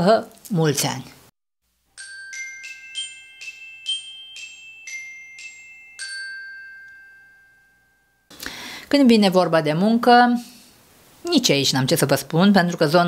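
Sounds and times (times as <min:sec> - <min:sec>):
glockenspiel jingle: 0:01.9 - 0:08.3.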